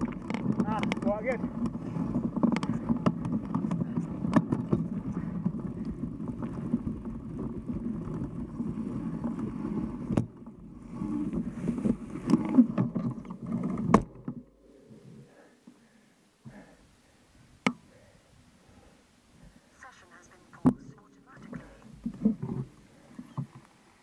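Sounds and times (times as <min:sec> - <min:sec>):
bike tyre rolling over rough ground: 0:00.0 - 0:14.7.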